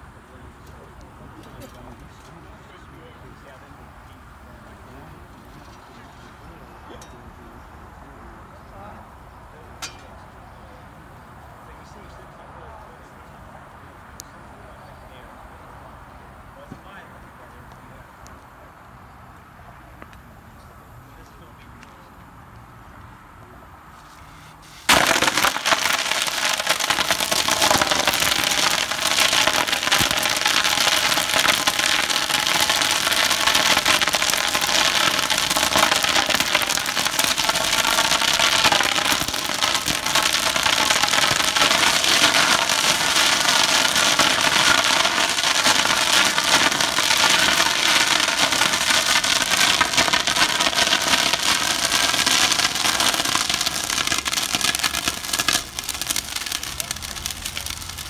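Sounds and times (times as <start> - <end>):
fire crackling: 23.9 - 58.0.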